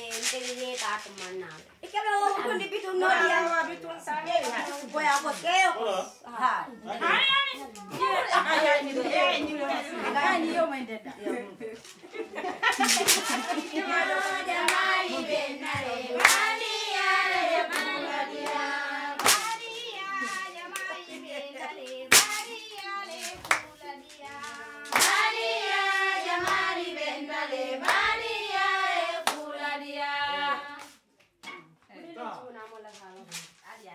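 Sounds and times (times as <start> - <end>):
hand claps: 12.7 - 15.0, 15.7 - 21.3, 21.9 - 26.7, 27.8 - 28.1, 29.2 - 29.4
voices singing a chant: 12.7 - 31.0.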